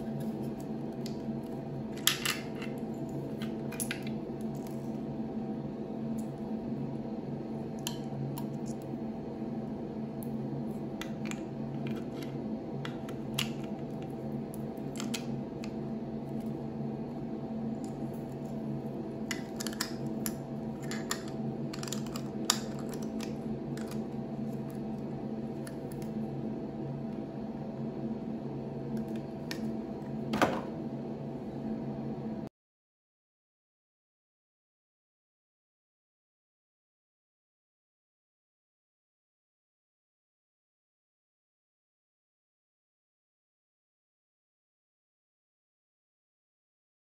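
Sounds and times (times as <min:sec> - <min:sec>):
steady low hum: 0:00.0 - 0:32.5.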